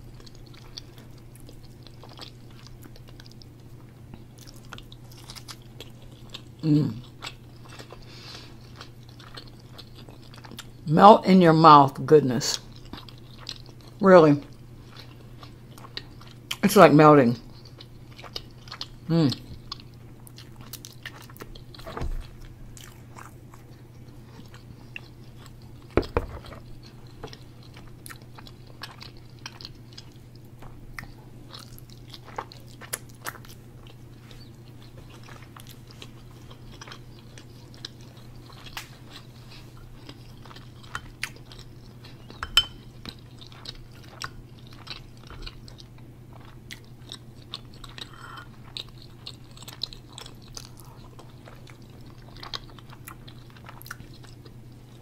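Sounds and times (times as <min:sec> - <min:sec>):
chewing: 0:00.0 - 0:10.8, 0:12.5 - 0:16.6, 0:17.5 - 0:55.0
steady low hum: 0:00.0 - 0:55.0.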